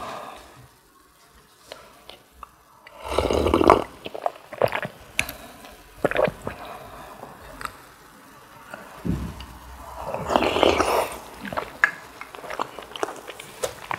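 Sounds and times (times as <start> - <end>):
chewing mouth sounds: 3.1 - 6.6, 9.1 - 13.9.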